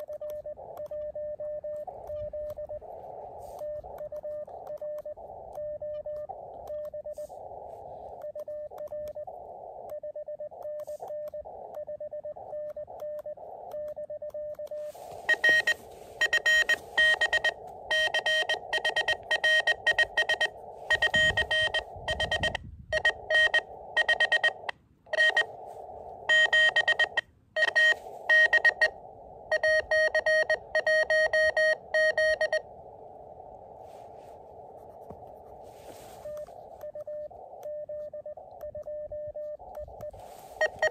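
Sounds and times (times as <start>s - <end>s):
morse code tones: 0.0s - 40.9s
radio receiver hiss: 1.8s - 8.3s, 14.7s - 37.6s, 39.6s - 40.9s.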